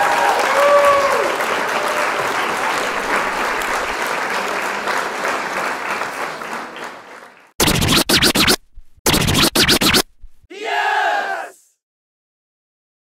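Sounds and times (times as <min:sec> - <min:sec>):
applause: 0:00.0 - 0:07.6
choppy bursts of music: 0:07.6 - 0:10.5.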